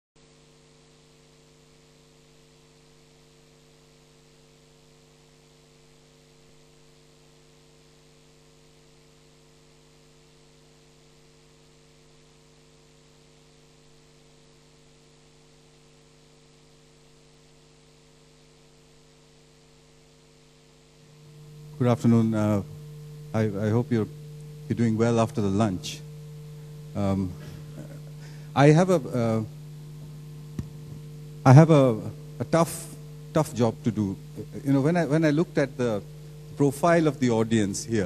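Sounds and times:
electrical mains hum: 0:00.2 - 0:38.0
light hiss: 0:21.0 - 0:38.0.

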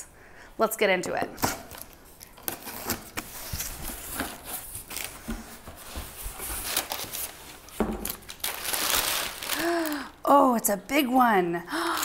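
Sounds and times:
packing paper crinkling: 0:01.7 - 0:10.2
packing tape pulled off: 0:08.0 - 0:10.0.

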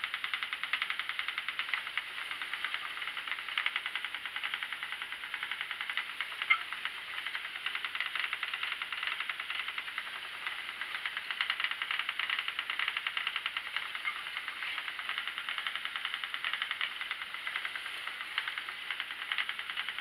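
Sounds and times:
spinning wheel whirring and ticking: 0:00.0 - 0:20.0.

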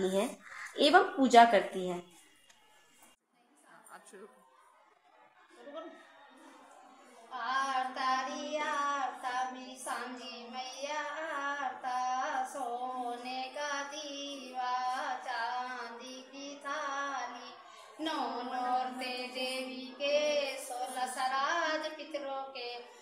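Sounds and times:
girls singing devotional folk song: 0:07.2 - 0:23.0.

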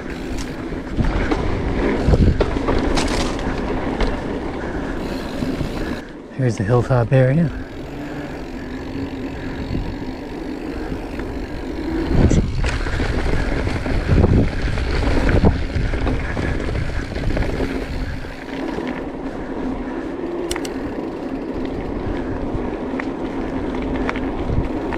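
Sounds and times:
wind on microphone: 0:00.0 - 0:03.8, 0:07.7 - 0:18.6
bike thumps and rattles: 0:00.0 - 0:06.0
bike tyre hum on pavement: 0:00.0 - 0:24.9.

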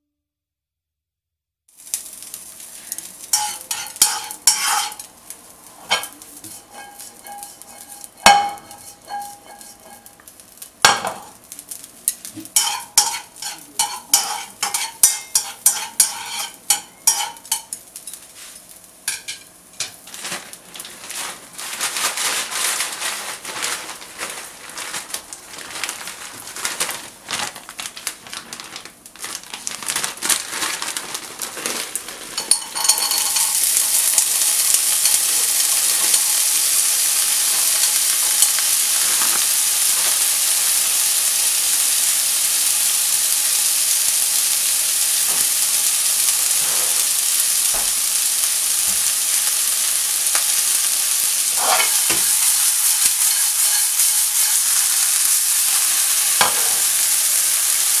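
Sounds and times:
meat sizzling in a frying pan: 0:01.7 - 0:58.0
spatula scraping a pan: 0:03.2 - 0:05.1, 0:05.8 - 0:10.2, 0:12.5 - 0:17.8, 0:32.4 - 0:33.8, 0:46.4 - 0:47.1, 0:51.4 - 0:56.9
spatula knocking against pan: 0:06.7 - 0:10.0.

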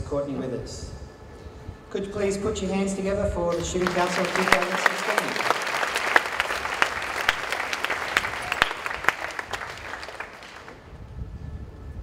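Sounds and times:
crowd applauding: 0:03.5 - 0:10.8.

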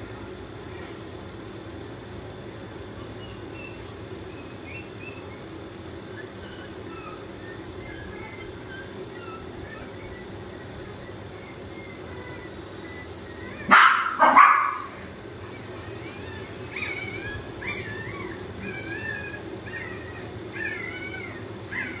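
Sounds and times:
puppy whimpering: 0:06.0 - 0:13.7, 0:14.6 - 0:22.0
dog barking: 0:13.6 - 0:15.0.

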